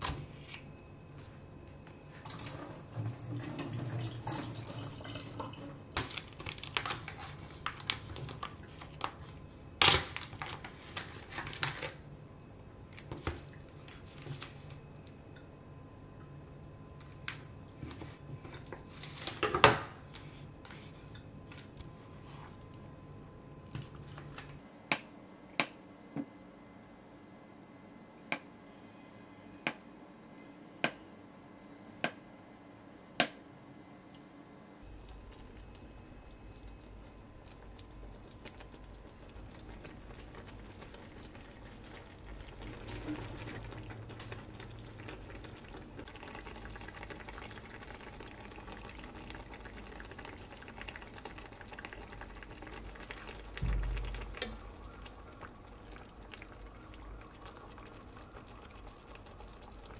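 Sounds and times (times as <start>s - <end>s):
pan simmering and bubbling: 34.8s - 59.9s
low thump: 53.6s - 54.2s.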